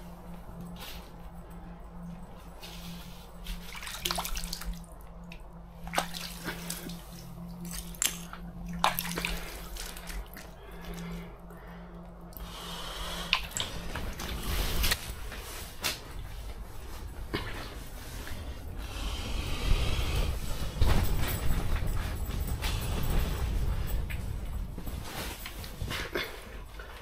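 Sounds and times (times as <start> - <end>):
low hum: 0.0 - 27.0
water splashing and dripping: 3.5 - 11.1, 13.2 - 15.0.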